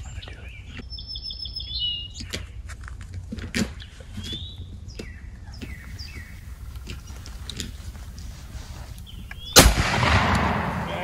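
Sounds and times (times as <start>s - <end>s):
wind rumble: 5.8s - 11.0s.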